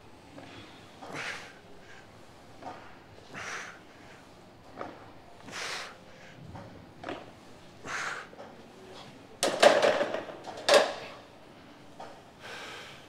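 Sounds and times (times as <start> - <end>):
soft breathing: 0.3 - 6.5, 7.2 - 9.2, 11.0 - 13.0.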